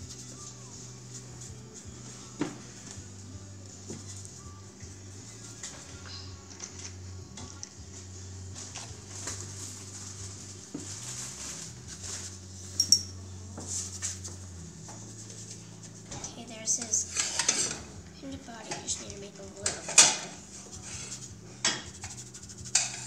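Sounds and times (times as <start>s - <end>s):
sharp clinks: 12.8s - 13.2s
paintbrush scratching on paper: 20.5s - 23.0s.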